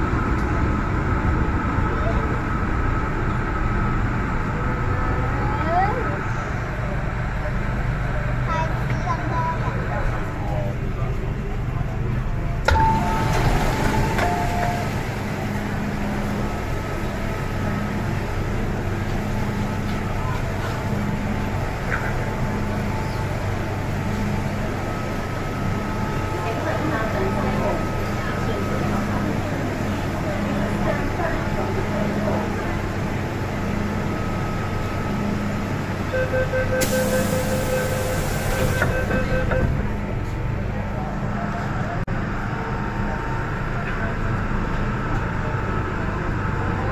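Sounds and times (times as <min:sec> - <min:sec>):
low rumble and hum: 0:00.0 - 0:46.9
crowd noise: 0:04.2 - 0:36.8, 0:38.5 - 0:46.9.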